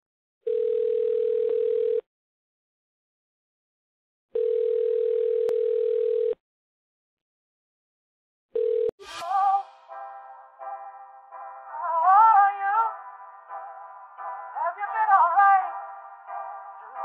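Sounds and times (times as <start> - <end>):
telephone ringing tone: 0.4 - 2.0, 4.3 - 6.4, 8.5 - 9.0.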